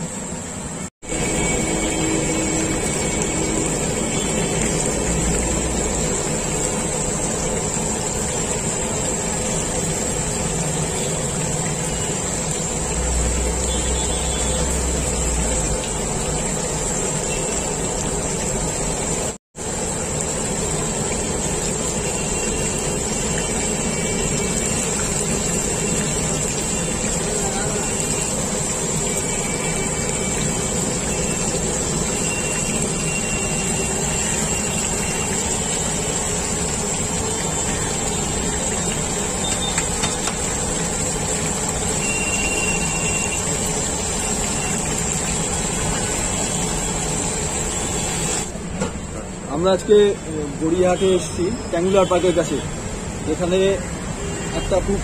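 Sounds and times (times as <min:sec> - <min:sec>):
batter deep-frying in oil: 0:00.0 - 0:55.0
street noise: 0:00.0 - 0:55.0.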